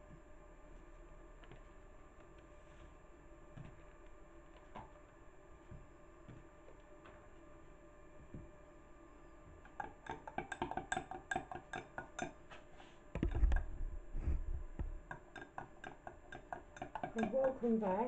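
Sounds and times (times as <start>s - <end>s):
low thuds: 13.2s - 15.1s.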